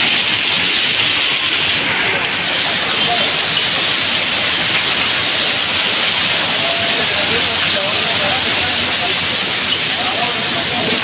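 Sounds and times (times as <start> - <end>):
heavy rain pouring: 0.0 - 11.0.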